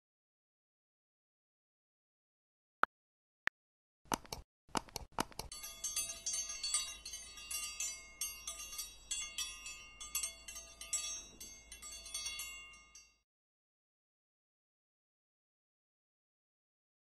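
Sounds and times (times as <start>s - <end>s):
tinkling chimes: 5.5s - 13.2s.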